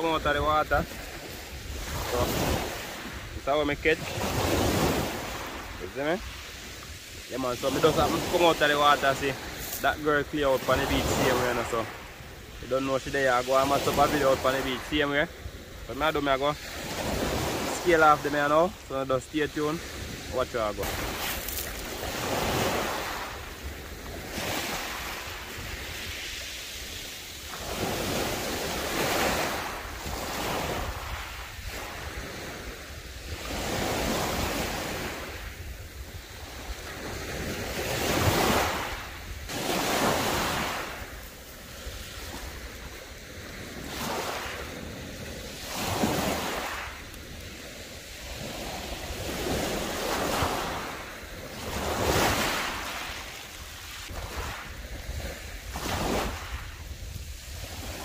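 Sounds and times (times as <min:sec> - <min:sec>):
wind buffeting microphone: 0:00.0 - 0:12.7
waves breaking on pebbles: 0:00.0 - 0:58.0.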